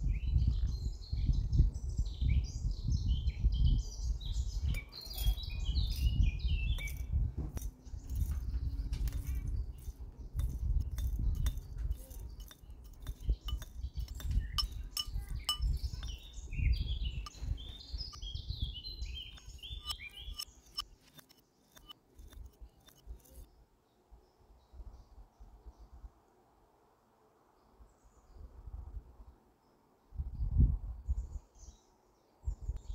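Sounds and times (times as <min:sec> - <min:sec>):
high bird chirping: 0:00.1 - 0:23.5
seeds and spoon clinking in glass jar: 0:04.7 - 0:17.8, 0:19.2 - 0:23.5.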